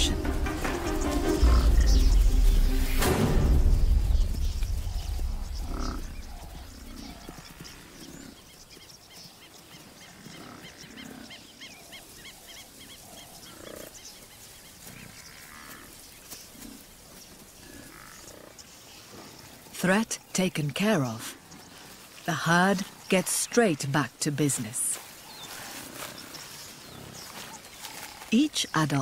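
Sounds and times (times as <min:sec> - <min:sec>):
low rumble: 0:00.0 - 0:07.3
animals grunting and growling: 0:00.0 - 0:08.4.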